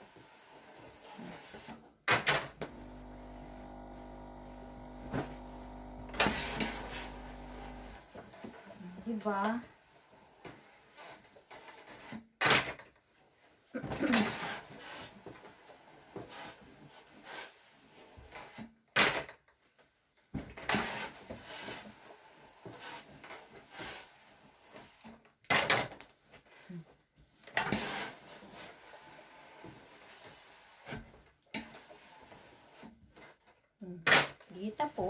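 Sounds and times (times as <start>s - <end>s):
steam iron hiss: 0.0s - 1.7s, 2.6s - 11.2s, 27.7s - 31.0s, 31.6s - 32.9s.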